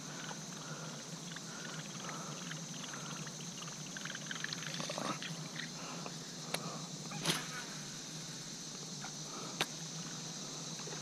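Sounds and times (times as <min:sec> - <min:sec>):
insects droning: 0:00.0 - 0:11.0
small water sounds: 0:01.2 - 0:05.7.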